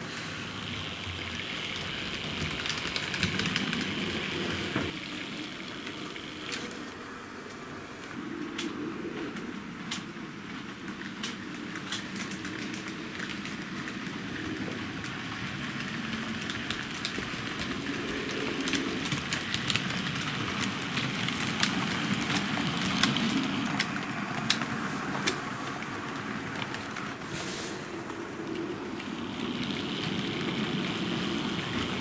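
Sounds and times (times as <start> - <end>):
model train rumbling on track: 0.0 - 7.4, 9.3 - 32.0
clicks of wheels on rail joints: 8.5 - 27.3.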